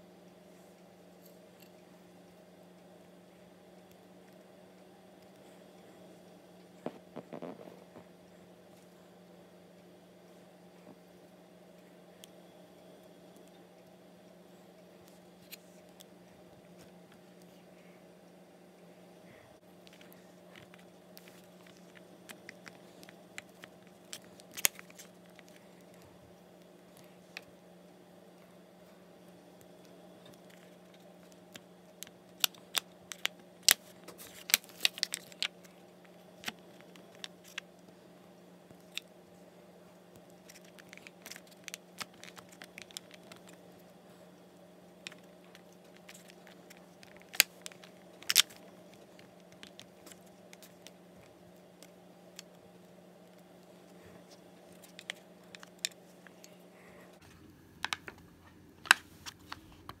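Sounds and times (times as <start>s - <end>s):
steady low hum: 0.0s - 60.0s
plastic moulds clicking and crinkling: 19.8s - 26.0s, 29.8s - 38.0s, 40.1s - 43.9s, 44.9s - 56.5s, 57.8s - 60.0s.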